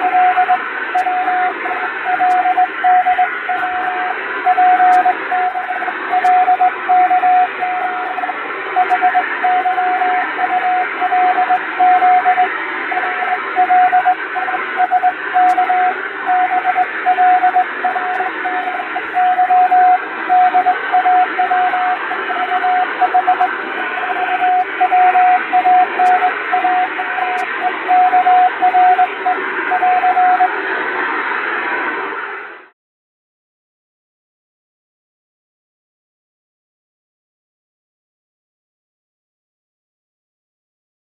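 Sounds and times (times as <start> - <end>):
morse code tone: 0.0 - 30.5
radio static hiss: 0.0 - 32.7.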